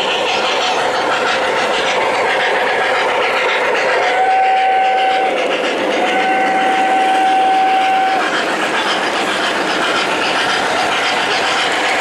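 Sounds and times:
model train running on track: 0.0s - 12.0s
model train steam whistle: 4.0s - 8.4s.

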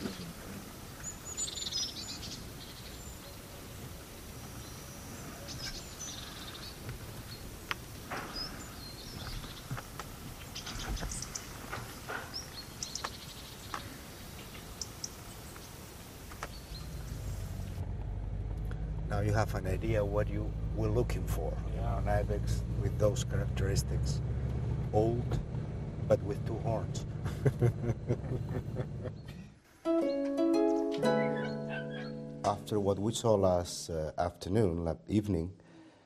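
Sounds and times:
small birds chirping: 0.0s - 17.8s, 31.0s - 32.3s
steady low rumble: 16.6s - 29.3s.

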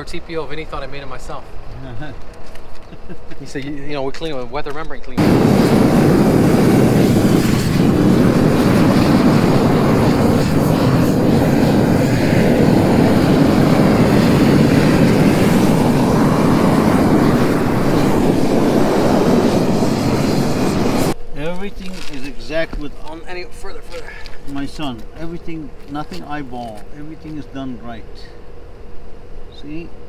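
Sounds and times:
propane torch flame rushing: 5.2s - 21.2s.

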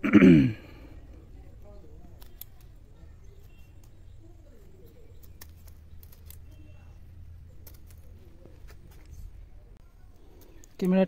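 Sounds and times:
scissors snipping twigs: 1.6s - 4.2s, 4.8s - 6.8s, 7.4s - 9.2s.

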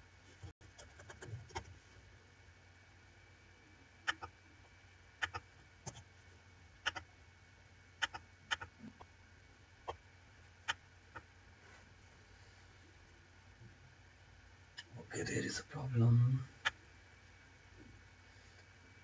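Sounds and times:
computer mouse clicking: 5.2s - 6.0s, 8.0s - 8.7s.

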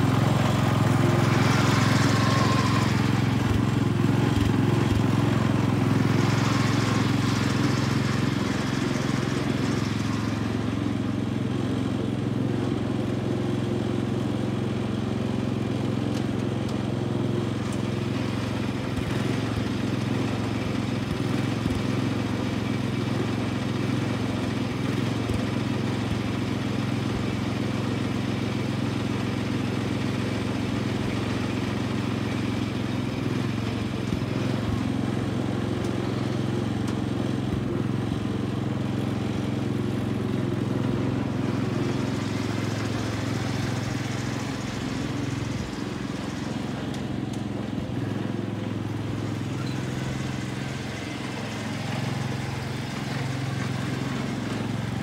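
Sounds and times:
garden tractor engine running: 0.0s - 55.0s.

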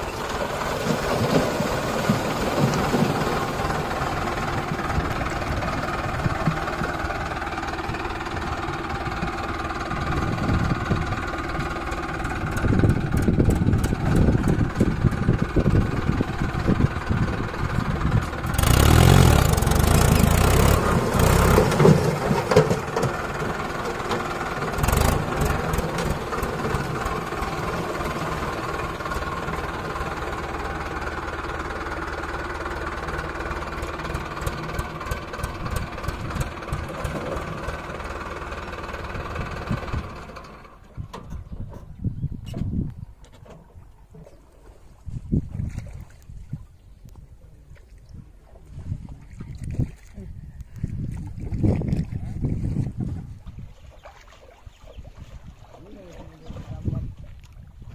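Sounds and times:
heavy diesel engine running: 0.0s - 41.5s.

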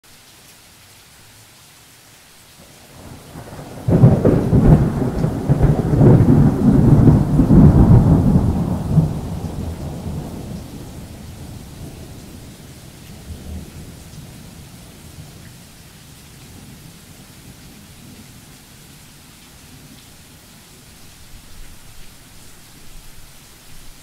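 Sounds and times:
faint steady hiss: 0.0s - 24.0s
thunder crack and rumble: 3.0s - 12.5s.

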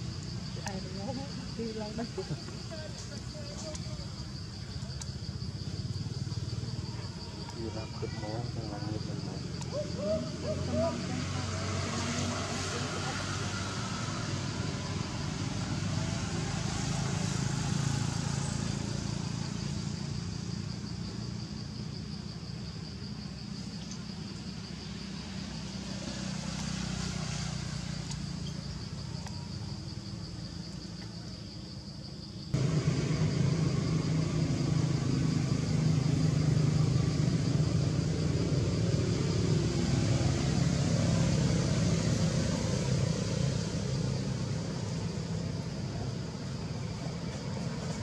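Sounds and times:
pulsing high-pitched drone: 32.6s - 38.2s
low rumble: 32.6s - 40.4s.

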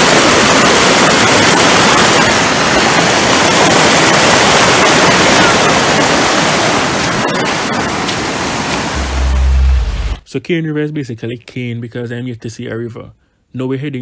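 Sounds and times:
floodwater rushing over rocks: 0.0s - 10.2s.

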